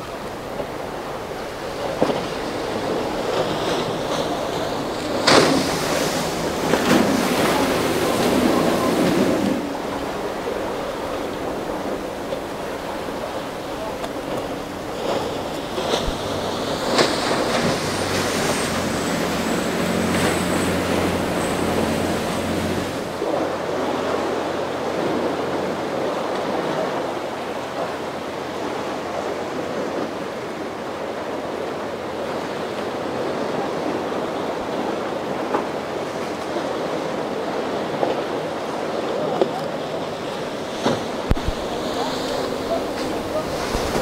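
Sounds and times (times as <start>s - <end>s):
boat engines droning: 0.0s - 44.0s
surf breaking: 0.0s - 44.0s
wind: 0.0s - 44.0s.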